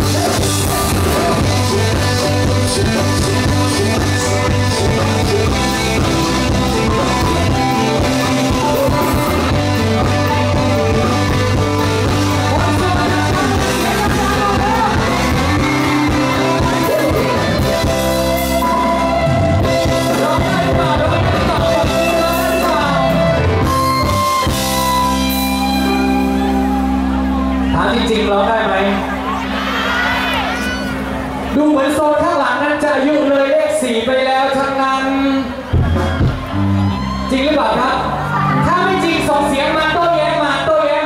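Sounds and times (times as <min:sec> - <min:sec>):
person singing: 0:00.0 - 0:24.2
drums: 0:00.0 - 0:28.3, 0:35.1 - 0:40.6
bass guitar: 0:00.0 - 0:41.0
electric guitar: 0:00.0 - 0:41.0.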